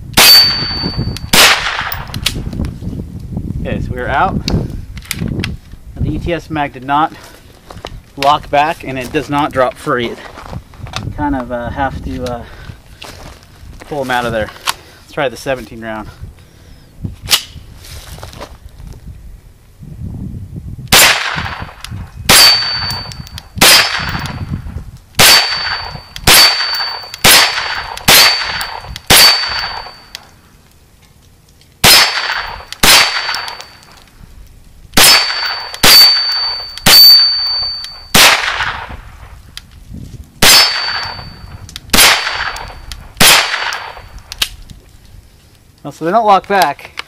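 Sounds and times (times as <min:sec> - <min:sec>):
high metallic ring: 0:00.2 - 0:01.3, 0:22.4 - 0:23.4, 0:25.5 - 0:27.2, 0:29.3 - 0:30.3, 0:35.2 - 0:38.2, 0:40.5 - 0:41.7
carbine gunshots: 0:00.2 - 0:02.1, 0:20.9 - 0:24.4, 0:25.2 - 0:30.0, 0:31.8 - 0:33.8, 0:35.0 - 0:39.0, 0:40.4 - 0:44.1.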